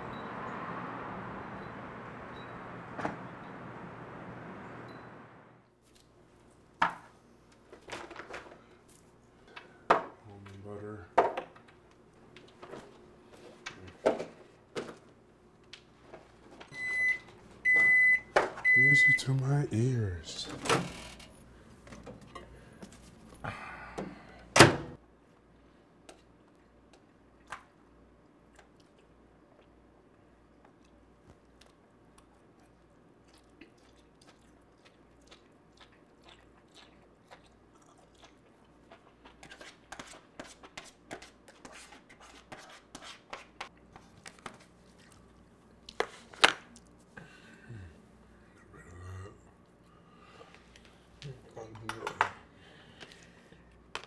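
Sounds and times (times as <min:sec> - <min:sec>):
outdoor background hum: 0:00.0 - 0:54.0
microwave door opening: 0:24.6 - 0:24.9
microwave door shutting thunk: 0:24.6 - 0:24.9.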